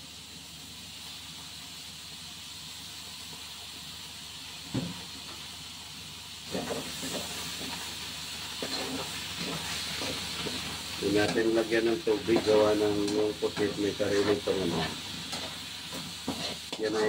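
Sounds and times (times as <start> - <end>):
squid sizzling in a wok: 0.0 - 17.0
metal spatula scraping a wok: 6.5 - 11.4, 12.1 - 17.0.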